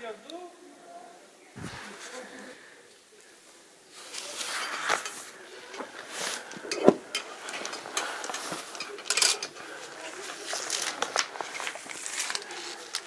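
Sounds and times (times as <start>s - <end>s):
scuffs and rustling on rock: 3.9s - 13.0s
chain clinking against rock: 6.4s - 9.8s.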